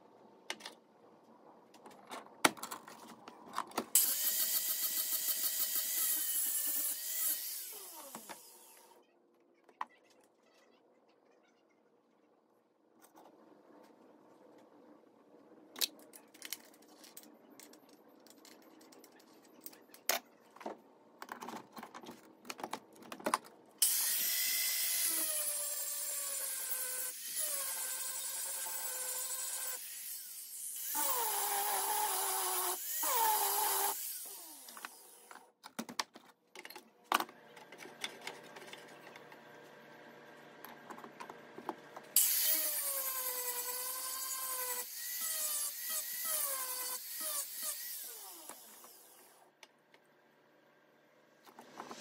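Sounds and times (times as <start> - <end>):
angle grinder grinding steel: 4.0 - 9.0, 23.8 - 35.2, 42.2 - 49.3.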